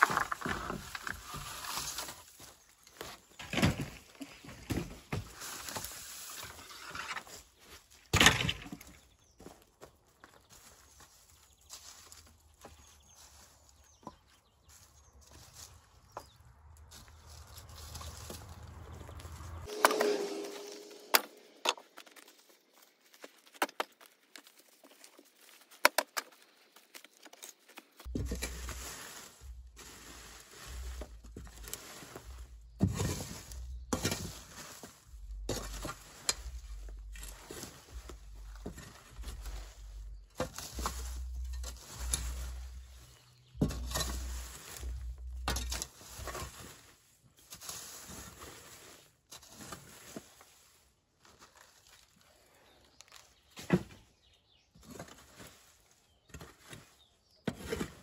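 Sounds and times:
spade scraping through bricks: 28.0s - 46.8s, 56.3s - 58.0s.

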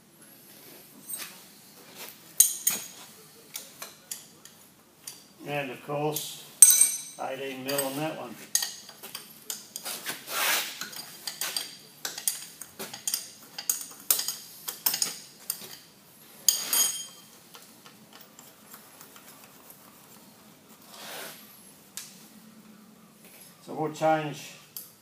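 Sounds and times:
ringing metal clink: 6.6s - 8.0s, 16.5s - 17.3s
metal parts clicking and clinking: 6.6s - 9.9s, 10.8s - 15.9s, 16.5s - 19.3s.

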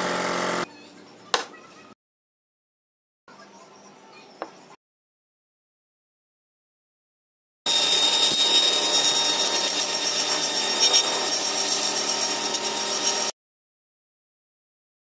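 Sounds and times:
rotary tool sanding wood: 7.7s - 13.3s.

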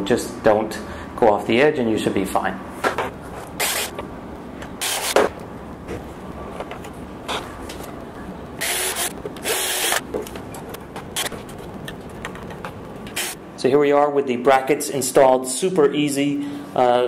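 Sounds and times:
cordless drill boring into wood: 8.6s - 10.0s.

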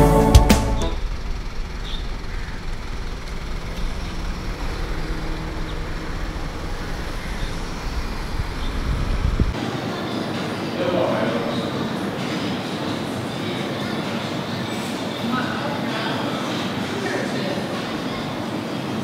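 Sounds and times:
road traffic rumble: 0.0s - 10.1s
faint constant hum: 0.8s - 19.0s.

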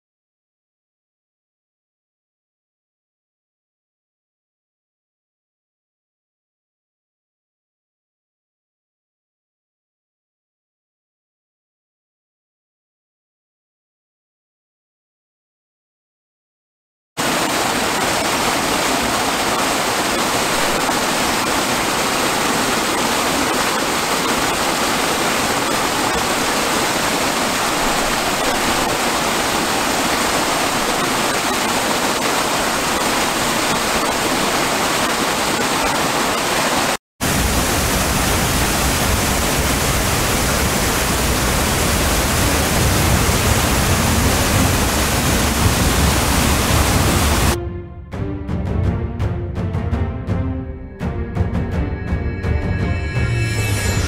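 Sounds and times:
waterfall rushing: 17.2s - 47.6s.

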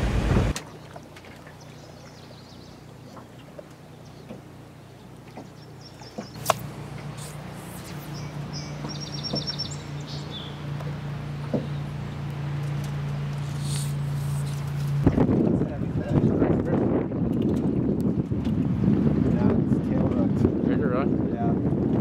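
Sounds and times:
low engine drone: 0.0s - 17.3s
sharp click: 6.4s - 6.7s
bird trilling high chirps: 7.1s - 10.8s.

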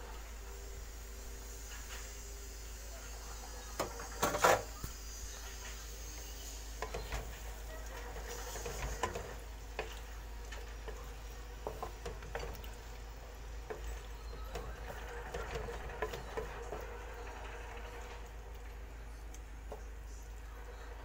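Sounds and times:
food sizzling: 0.0s - 21.0s
spatula scraping a wok: 3.8s - 10.0s.

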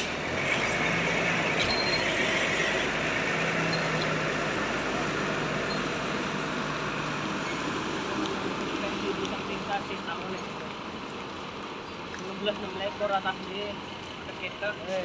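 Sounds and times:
diesel buses idling: 0.0s - 15.0s.

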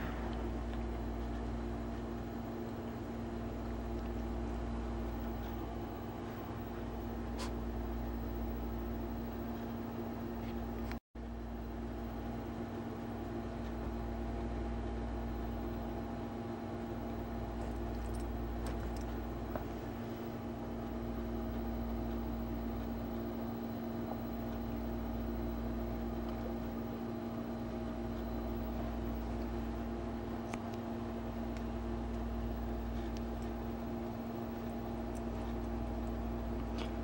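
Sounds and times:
appliance humming: 0.0s - 37.0s
dog scratching and chewing: 32.8s - 37.0s.

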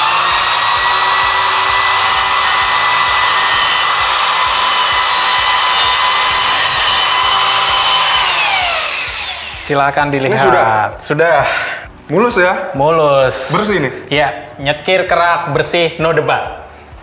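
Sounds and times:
grinding stone on metal pipe: 0.0s - 9.7s
die grinder high whine: 0.0s - 9.9s.

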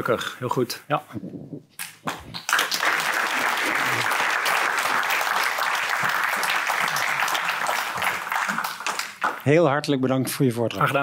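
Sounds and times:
audience applauding: 2.1s - 9.5s.

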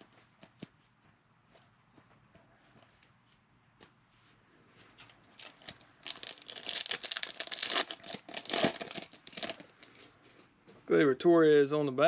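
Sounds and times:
foil wrapper tearing and crinkling: 5.4s - 9.9s.

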